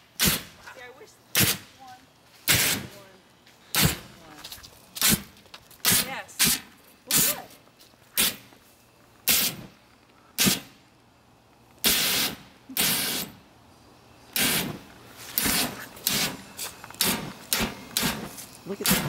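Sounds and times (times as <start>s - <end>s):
propane flame whooshing: 14.3s - 19.0s.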